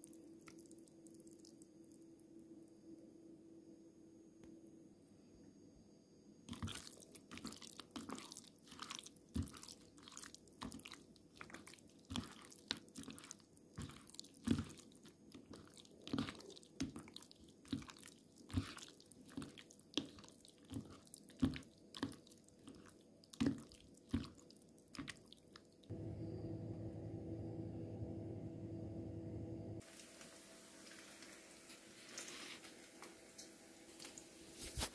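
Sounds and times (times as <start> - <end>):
wet squelches of batter: 0.0 - 2.1, 6.5 - 25.9
refrigerator humming: 25.9 - 29.8.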